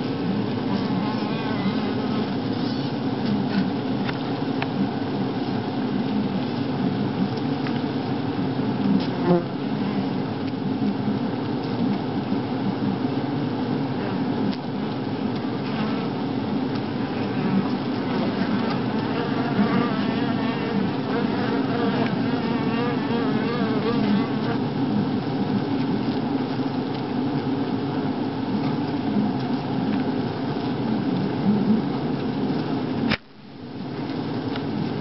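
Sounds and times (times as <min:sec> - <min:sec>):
bees buzzing: 0:00.3 - 0:02.4, 0:15.6 - 0:24.8.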